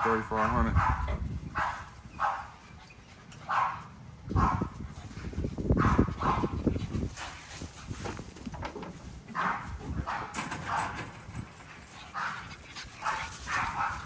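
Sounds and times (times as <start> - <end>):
puppies barking and yipping: 0.0 - 7.1, 9.3 - 14.0
low scuffling thumps: 5.0 - 11.7.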